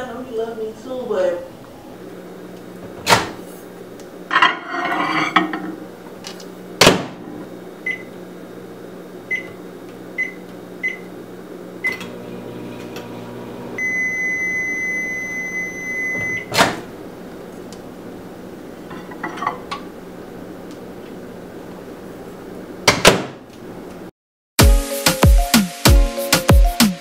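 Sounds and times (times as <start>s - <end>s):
microwave humming: 0.0s - 24.1s
bowl set on glass turntable: 4.3s - 5.8s
long end-of-cycle beep: 7.8s - 8.1s, 9.3s - 9.6s, 13.8s - 16.5s.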